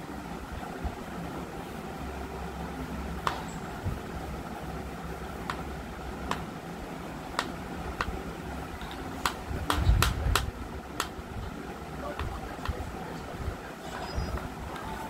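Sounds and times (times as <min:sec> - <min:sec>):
steady low hum: 0:00.0 - 0:15.0
sharp clicks or taps: 0:06.3 - 0:06.5, 0:07.4 - 0:08.2, 0:08.8 - 0:11.2, 0:12.2 - 0:12.8.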